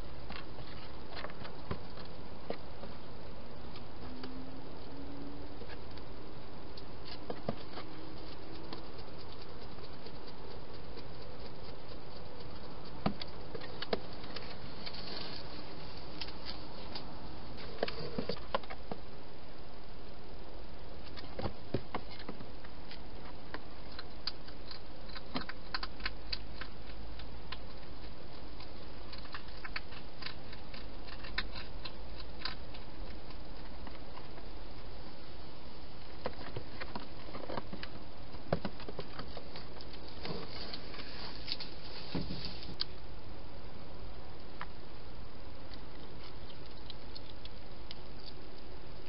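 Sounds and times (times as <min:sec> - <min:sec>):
hedgehog eating clicks: 0:06.7 - 0:15.0, 0:21.1 - 0:34.9, 0:45.7 - 0:49.0
steady hiss: 0:39.5 - 0:46.3.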